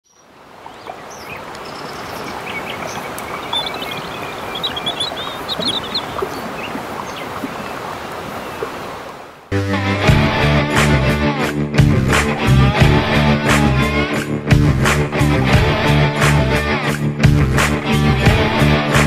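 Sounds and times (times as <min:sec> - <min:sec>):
small birds chirping: 0:00.0 - 0:09.1
rushing river water: 0:00.0 - 0:09.5.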